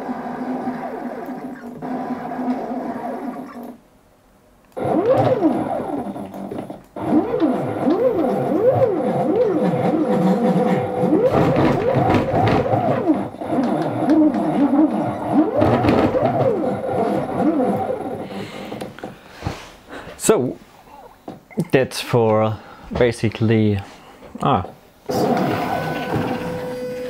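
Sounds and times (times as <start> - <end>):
stepper motors whining: 4.7 - 18.9, 25.1 - 27.0.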